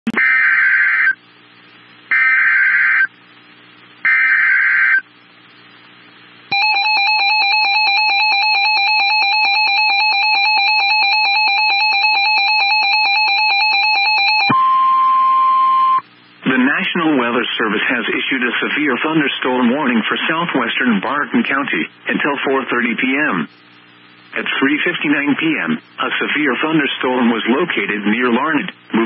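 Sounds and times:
screechy digital data bursts: 0:02.1 - 0:03.2, 0:04.0 - 0:05.1
harsh two-tone attention signal: 0:06.5 - 0:16.0.

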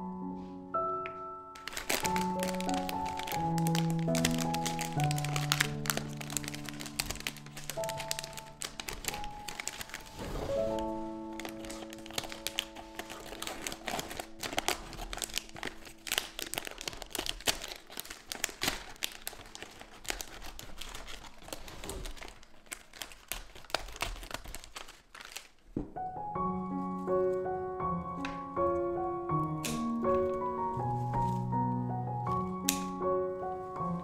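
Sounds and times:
soft background music: 0:00.0 - 0:20.2, 0:25.9 - 0:34.0
piano: 0:00.0 - 0:34.0
scissors cutting plastic: 0:01.6 - 0:25.7, 0:29.5 - 0:30.4, 0:32.3 - 0:33.0
plastic film crinkling: 0:01.6 - 0:27.6, 0:29.6 - 0:34.0.

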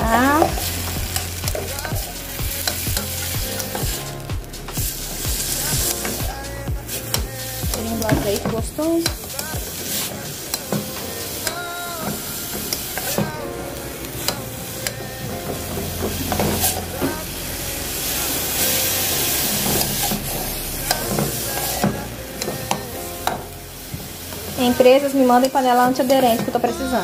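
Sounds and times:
vegetables sizzling in oil: 0:00.0 - 0:04.0, 0:06.9 - 0:13.4, 0:18.0 - 0:27.0.

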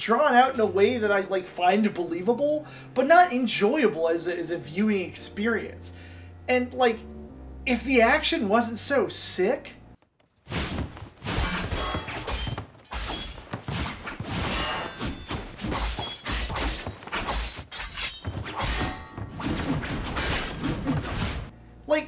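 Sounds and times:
film music score: 0:00.0 - 0:10.0
heavy thuds: 0:10.3 - 0:21.5
swords clashing: 0:11.2 - 0:21.5.

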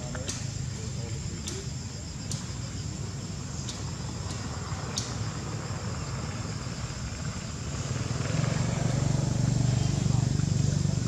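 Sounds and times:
low motor-like rumble: 0:02.3 - 0:11.0.

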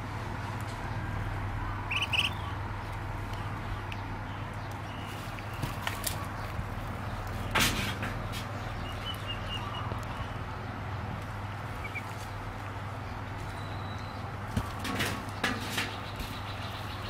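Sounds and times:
steady background hum: 0:00.0 - 0:17.0
ducklings peeping: 0:01.7 - 0:07.5, 0:08.5 - 0:10.8, 0:11.6 - 0:14.3.

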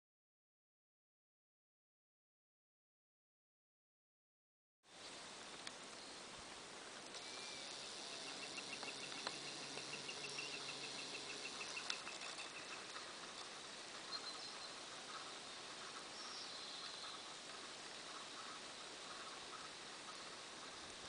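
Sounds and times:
high chirps: 0:07.2 - 0:13.0
insect buzzing: 0:07.2 - 0:14.0.

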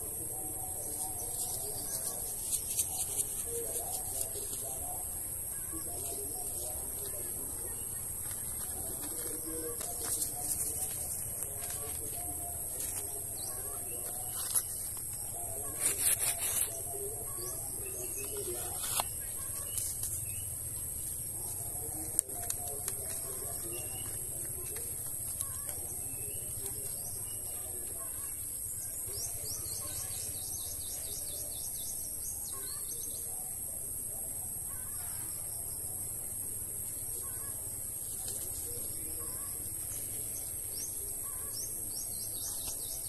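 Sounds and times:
insect drone: 0:00.0 - 0:43.0
steady high-pitched hiss: 0:00.0 - 0:43.0.

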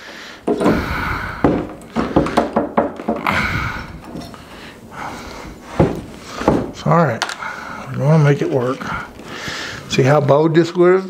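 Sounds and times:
hammer driving nails into wood: 0:00.4 - 0:04.2.

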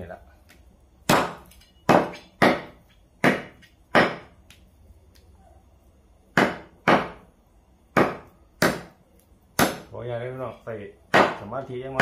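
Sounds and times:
cleaver chopping on wooden block: 0:01.1 - 0:04.3, 0:06.3 - 0:07.2, 0:07.9 - 0:09.0, 0:09.6 - 0:09.9, 0:11.1 - 0:11.4.

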